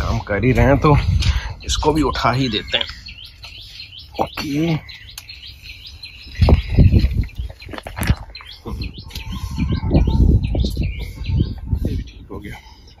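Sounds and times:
small birds chirping: 0:00.0 - 0:13.0
potted plant rumbling and rustling: 0:06.0 - 0:11.9.

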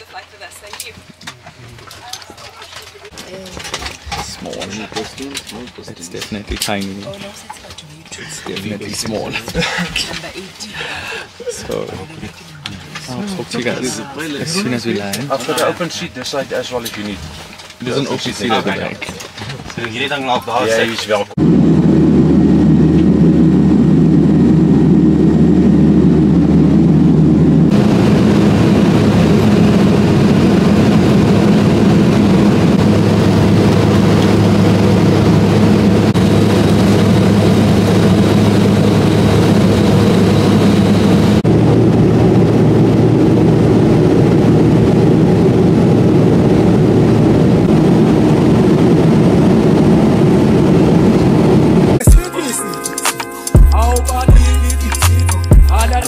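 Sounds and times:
plane engine drone in cabin: 0:07.3 - 0:19.8, 0:21.2 - 0:52.0.

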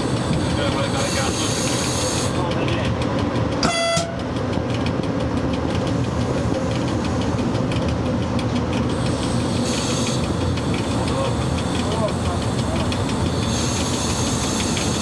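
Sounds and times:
locomotive running hum: 0:00.0 - 0:15.0
hiss: 0:01.0 - 0:02.3, 0:09.0 - 0:15.0.

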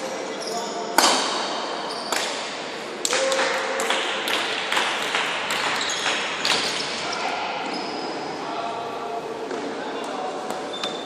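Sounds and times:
shoe squeaks: 0:00.3 - 0:01.0, 0:01.8 - 0:02.2, 0:05.7 - 0:08.4, 0:10.6 - 0:11.0.

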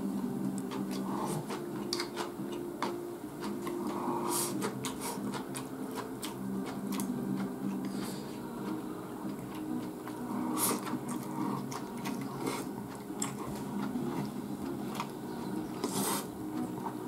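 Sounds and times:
steady low hum: 0:00.0 - 0:17.0
chewing mouth noises: 0:00.5 - 0:17.0.

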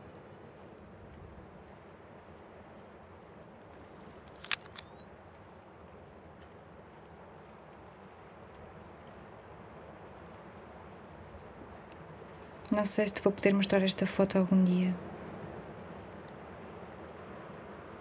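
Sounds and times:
camera flash charging whine: 0:04.3 - 0:16.4
camera shutter click: 0:04.4 - 0:05.4.

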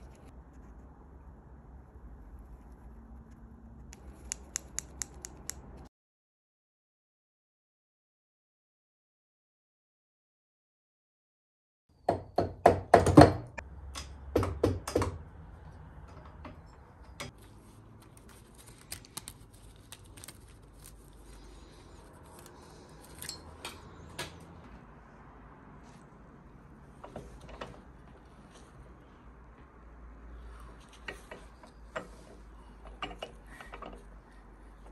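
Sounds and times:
tools knocking and clacking: 0:32.8 - 0:34.1.

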